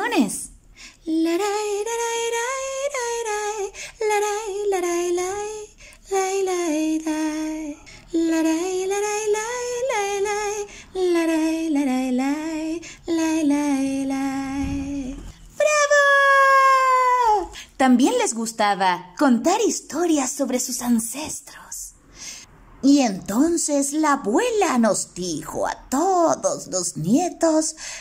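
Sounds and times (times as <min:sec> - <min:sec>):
woman singing a melody: 0:00.9 - 0:17.6.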